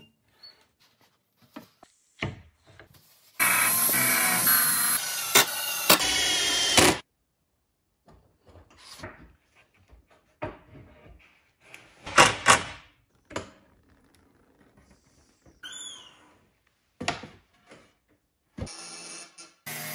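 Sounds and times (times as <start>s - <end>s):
brief squeak: 15.6s - 16.3s.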